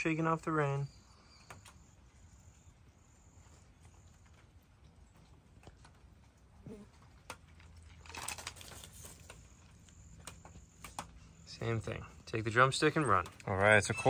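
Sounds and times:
fox chewing: 1.2s - 11.5s
crunching: 4.0s - 10.4s.

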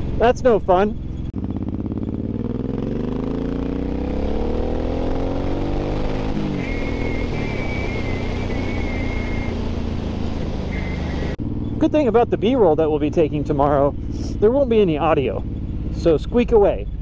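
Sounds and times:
motorcycle engine accelerating: 0.0s - 17.0s
high wavering squeak: 6.5s - 9.6s, 10.7s - 11.8s.

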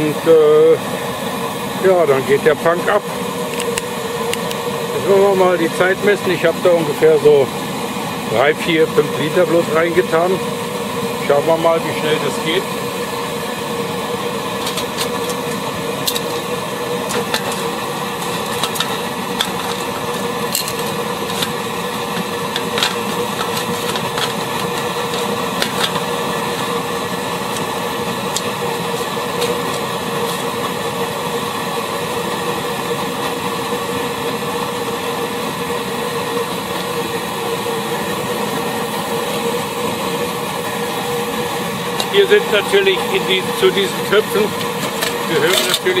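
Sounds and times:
petrol burner humming: 0.0s - 46.0s
metal pots clinking: 14.5s - 30.5s, 41.9s - 46.0s.

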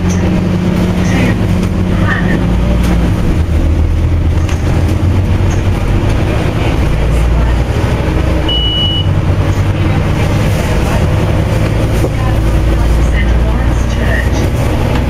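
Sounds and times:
bus diesel engine rumbling: 0.0s - 15.0s
short high beep: 8.5s - 9.1s.

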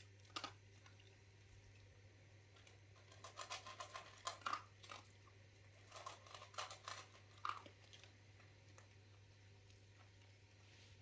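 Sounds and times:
dog crunching dry kibble: 0.0s - 1.2s, 2.5s - 10.4s.

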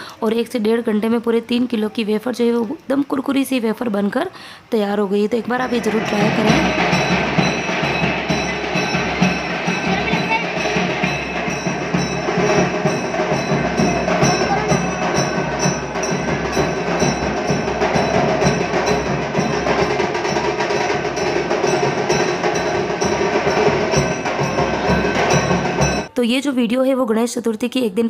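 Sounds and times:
drums played in a group: 5.6s - 26.1s.

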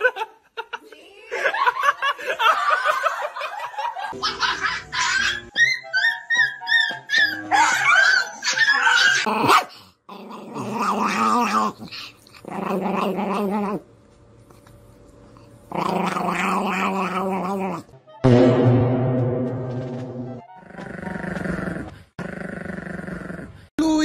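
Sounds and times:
small dog growling: 9.2s - 13.8s, 15.7s - 17.8s, 20.6s - 23.6s.

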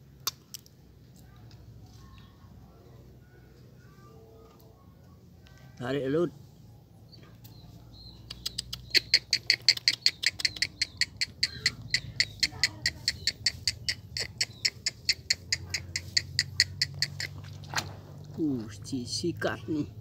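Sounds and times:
small animal chirping: 7.1s - 17.6s.

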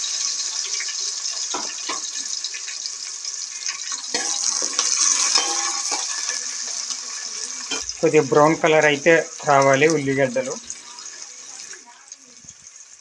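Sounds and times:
onions sizzling in oil: 0.0s - 13.0s
metal spoon scraping a pot: 4.1s - 6.4s.

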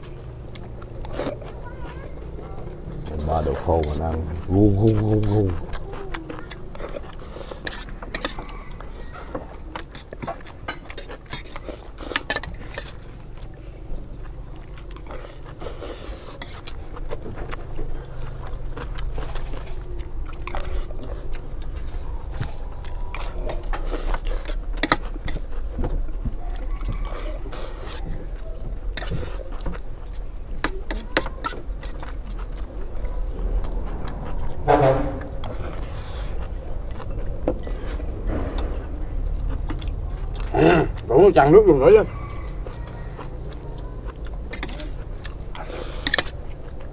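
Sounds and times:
chewing: 0.0s - 46.9s
low steady rumble: 31.6s - 46.9s.

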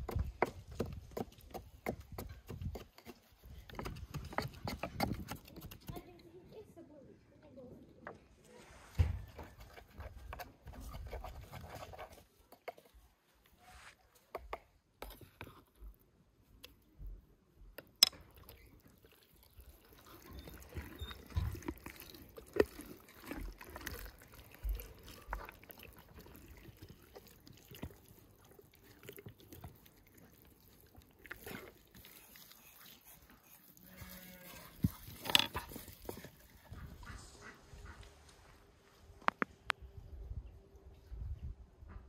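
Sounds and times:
pestle tapping in wooden mortar: 0.0s - 6.0s.

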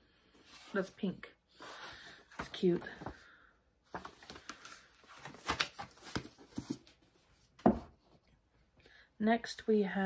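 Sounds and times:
book thumping on a shelf: 7.6s - 8.0s.

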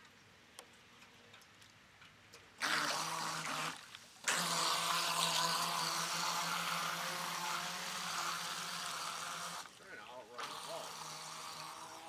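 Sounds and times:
toy boat motor humming: 2.6s - 9.7s, 10.3s - 12.0s
water rushing and spraying: 2.6s - 12.0s.

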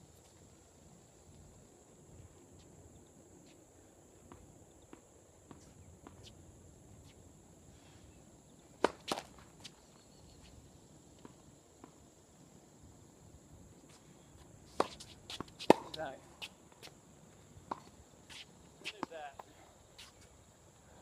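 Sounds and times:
tennis ball bouncing on hard court: 8.8s - 9.4s, 14.7s - 16.0s.

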